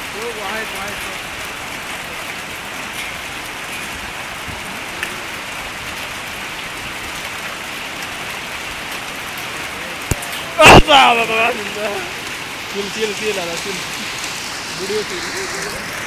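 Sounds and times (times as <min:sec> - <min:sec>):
hailstones ticking: 0:00.0 - 0:16.0
rain and hail hissing on pavement: 0:00.0 - 0:16.0.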